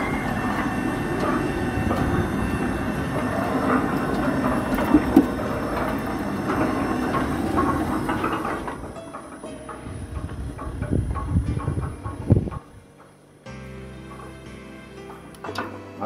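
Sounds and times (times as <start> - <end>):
sliding gate motor running: 0.0 - 16.0.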